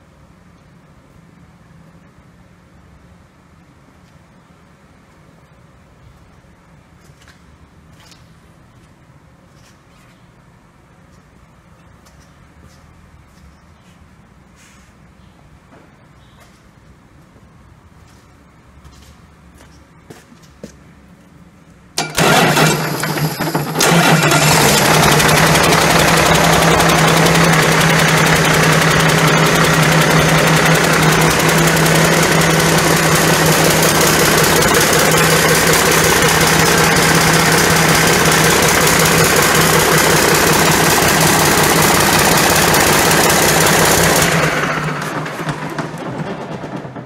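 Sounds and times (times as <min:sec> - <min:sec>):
diesel engine starting and running: 0:21.9 - 0:47.0.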